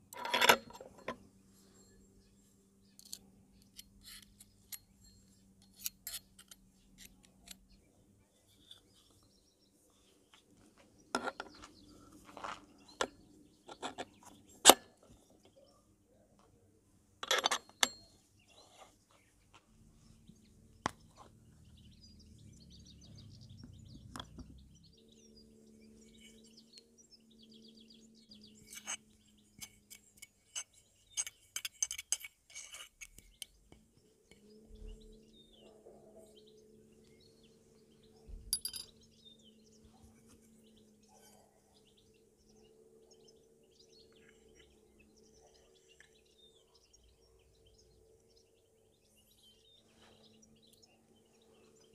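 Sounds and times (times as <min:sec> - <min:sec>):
metal parts clinking: 0:00.1 - 0:01.2, 0:17.2 - 0:18.2, 0:29.6 - 0:33.2, 0:38.5 - 0:39.0
faint bird chirps: 0:01.3 - 0:16.6, 0:17.6 - 0:31.7, 0:32.6 - 0:51.9.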